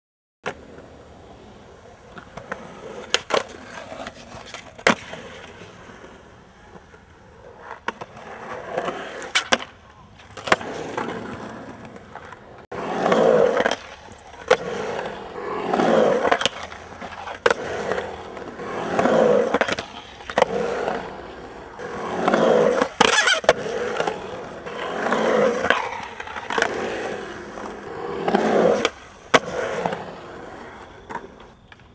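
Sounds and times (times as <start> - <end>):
skateboard wheels rolling: 0.4 - 31.9
skateboard clacking on ground: 1.8 - 31.9.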